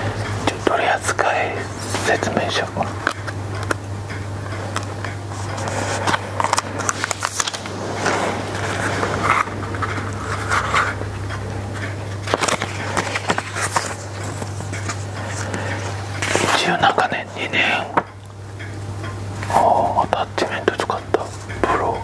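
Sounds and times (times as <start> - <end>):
steady low hum: 0.0 - 22.0
paper rustling and crinkling: 5.4 - 11.0, 12.2 - 16.6.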